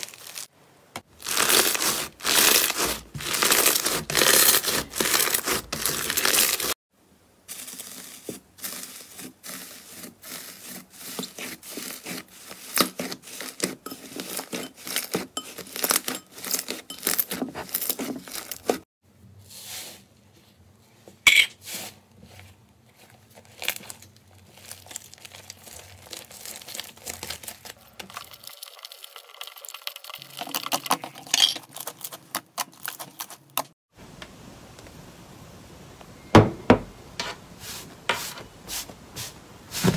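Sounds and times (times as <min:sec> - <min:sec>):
crunchy slime crackling: 0:00.0 - 0:00.5, 0:01.1 - 0:06.8, 0:22.9 - 0:28.9
hands squeezing slime: 0:01.2 - 0:06.8, 0:23.0 - 0:31.0.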